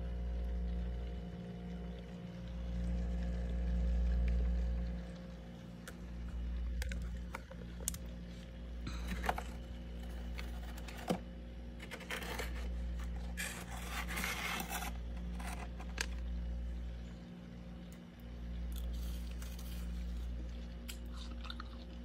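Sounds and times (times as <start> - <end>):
low hum: 0.0 - 22.0
fingernails scraping frost off plastic: 11.8 - 16.2.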